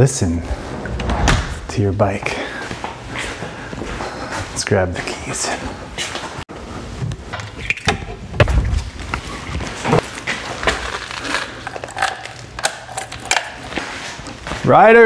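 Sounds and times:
keys clicking and rustling: 10.8s - 13.8s.

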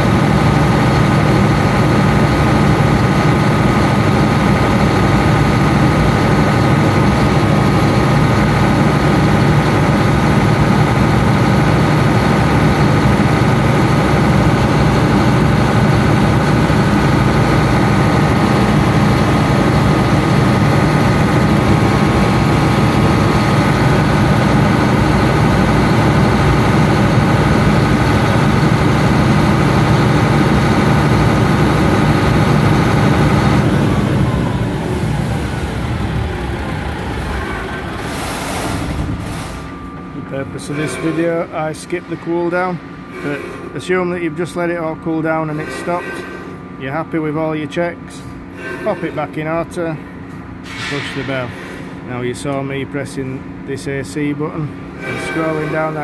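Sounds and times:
engine winding down: 0.0s - 41.3s
generator engine running: 0.0s - 56.0s.

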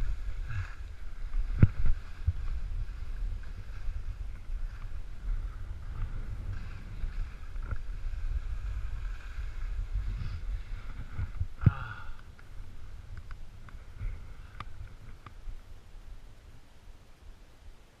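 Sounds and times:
skis scraping over snow: 0.0s - 11.5s
wind rumble on microphone: 0.0s - 18.0s.

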